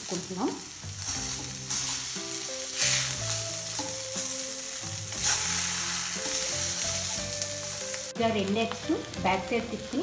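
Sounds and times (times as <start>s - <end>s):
eggs sizzling in oil: 0.0s - 10.0s
soft background music: 0.0s - 10.0s
spatula scraping a pan: 1.0s - 7.8s.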